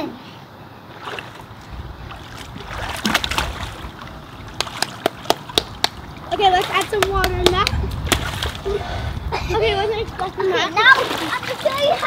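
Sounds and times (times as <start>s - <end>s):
pool water splashing: 0.6s - 12.0s
sharp taps: 4.6s - 6.0s, 6.8s - 8.3s.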